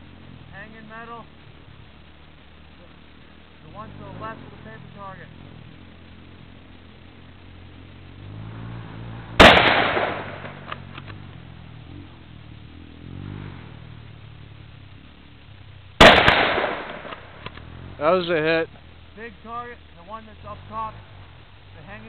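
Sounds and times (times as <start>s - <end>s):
rifle shot with echo: 9.4s - 10.9s, 16.0s - 17.5s.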